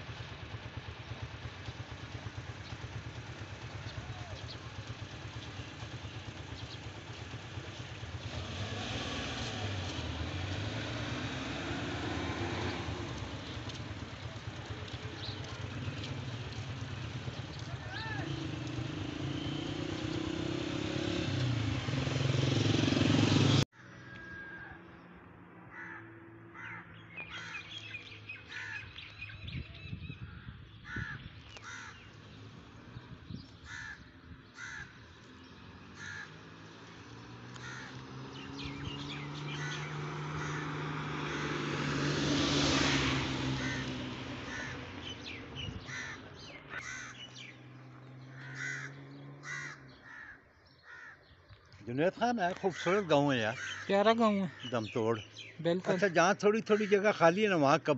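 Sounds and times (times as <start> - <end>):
engine and road noise: 0.0 - 57.9
vehicle passing: 6.4 - 23.7, 34.6 - 57.9
crows cawing: 23.8 - 24.8, 25.7 - 27.9, 28.5 - 29.0, 30.3 - 32.2, 33.6 - 35.2, 35.9 - 36.6, 37.5 - 38.1, 39.5 - 41.8, 42.9 - 47.5, 48.2 - 51.6, 52.3 - 57.4.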